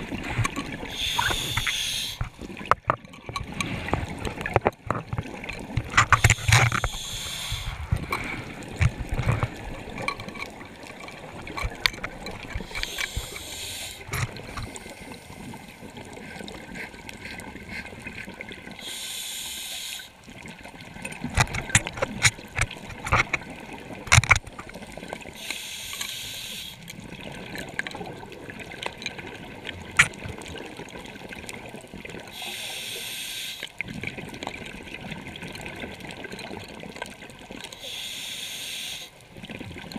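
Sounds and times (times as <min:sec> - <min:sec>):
exhaled bubbles gurgling: 0:00.0 - 0:37.9, 0:39.2 - 0:39.9
regulator inhalation hiss: 0:00.9 - 0:02.2, 0:06.2 - 0:07.9, 0:12.7 - 0:15.5, 0:18.8 - 0:20.1, 0:25.4 - 0:26.8, 0:32.3 - 0:33.7, 0:37.8 - 0:39.1.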